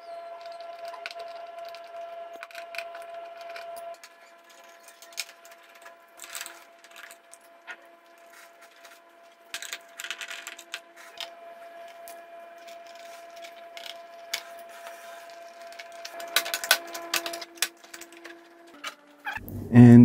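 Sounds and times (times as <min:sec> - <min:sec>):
faint steady hum: 0:00.0 - 0:20.0
plastic cover being pried: 0:15.6 - 0:18.9.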